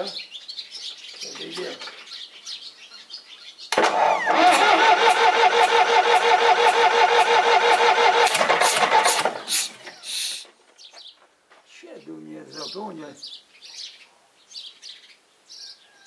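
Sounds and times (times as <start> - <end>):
diesel engine cranking: 3.7 - 10.4.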